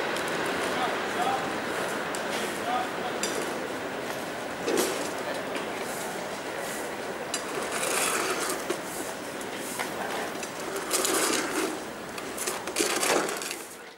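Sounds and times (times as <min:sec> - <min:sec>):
train rumbling on track: 0:00.0 - 0:13.6
wheel-on-rail clatter: 0:07.3 - 0:13.9.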